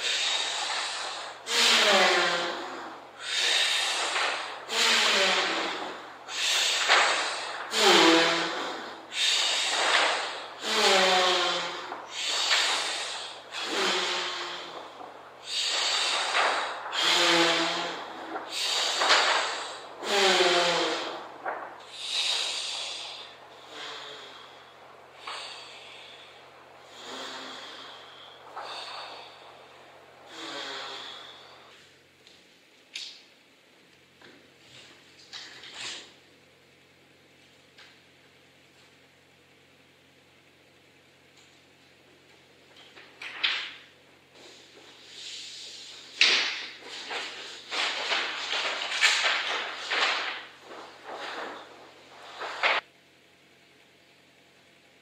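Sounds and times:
person breathing heavily: 0.0 - 31.8.

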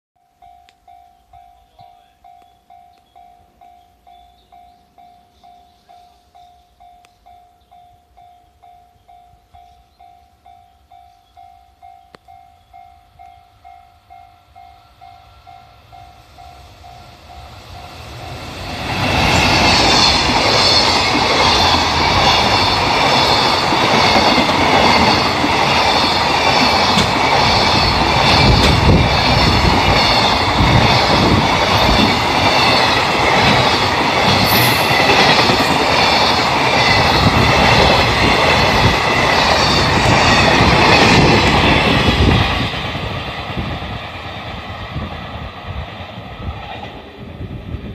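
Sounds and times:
level crossing warning bell: 0.2 - 18.5
freight train passing: 0.3 - 47.9.

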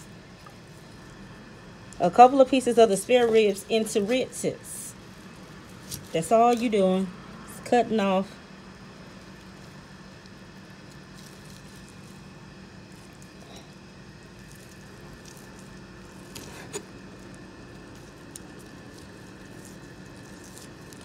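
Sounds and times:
low steady hum: 0.0 - 21.0
knife squishing through meat: 5.0 - 6.7, 9.0 - 21.0.

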